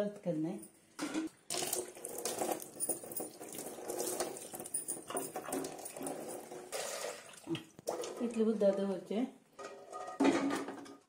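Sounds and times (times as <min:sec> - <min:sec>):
tap water running into sink: 0:01.5 - 0:08.4
water splashing: 0:01.5 - 0:08.4.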